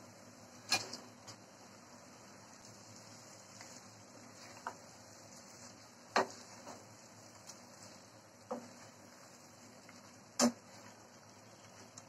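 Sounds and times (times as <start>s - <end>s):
wooden spatula knocking on pan: 6.1s - 6.4s.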